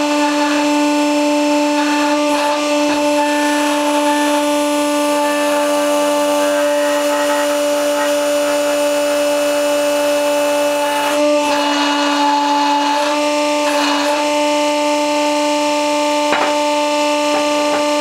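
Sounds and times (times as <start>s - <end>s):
hydraulic pump whining: 0.0s - 18.0s.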